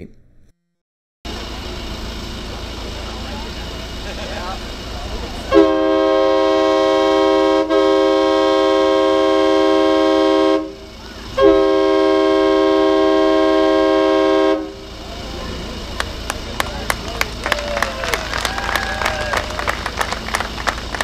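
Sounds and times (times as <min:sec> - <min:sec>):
air horn blasts: 0:05.4 - 0:15.0.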